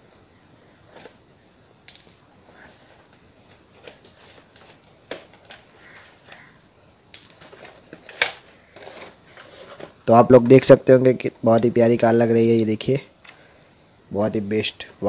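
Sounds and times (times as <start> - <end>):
cardboard rustling: 0.8 - 1.2, 2.6 - 6.6, 7.3 - 10.1.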